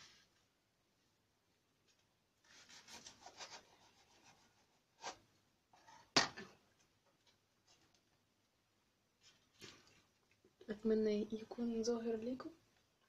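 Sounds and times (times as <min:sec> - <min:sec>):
knife sawing through crisp bread: 0:02.5 - 0:05.2.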